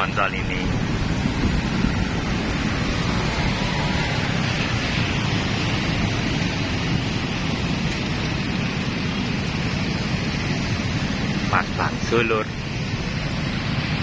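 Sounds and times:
wind and road noise: 0.0s - 14.0s.

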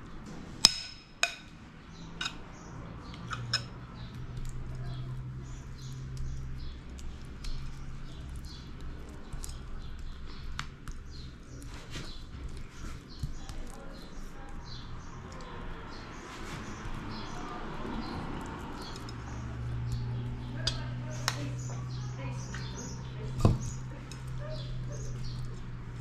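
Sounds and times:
spoon scraping sauce on dough: 2.1s - 26.0s
metal spoon clinking on bowl: 2.2s - 2.5s, 3.1s - 3.8s.

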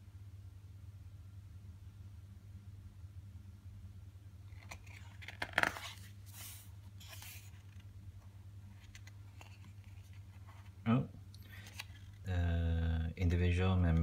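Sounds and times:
book pages rustling: 4.4s - 10.8s, 11.5s - 12.3s
page flapping: 4.5s - 7.9s, 8.7s - 10.7s.

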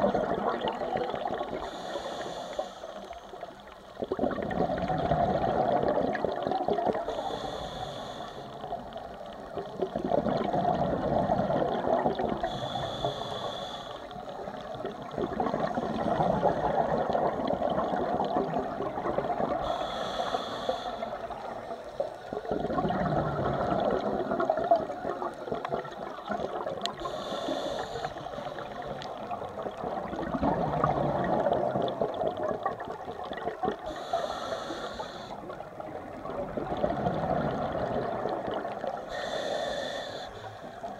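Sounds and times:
gurgling exhaled bubbles: 0.0s - 1.8s, 3.9s - 7.5s, 8.6s - 13.4s, 14.1s - 20.2s, 21.0s - 34.6s, 35.4s - 39.6s
hissing regulator inhale: 1.6s - 3.4s, 7.1s - 8.7s, 12.4s - 14.6s, 19.5s - 22.3s, 26.9s - 28.8s, 33.8s - 35.6s, 39.1s - 40.9s.

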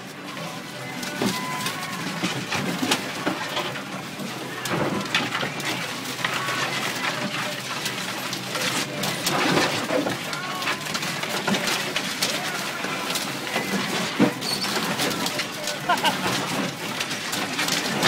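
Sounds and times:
water spraying on windshield: 4.1s - 17.6s.

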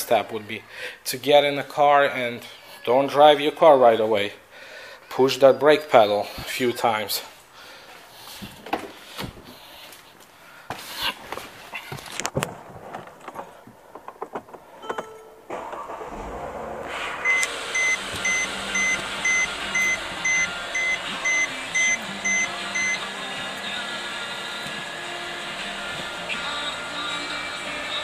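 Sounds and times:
clicks and knocks in car: 12.0s - 15.8s
two-tone warning chime beeping: 17.2s - 23.0s.

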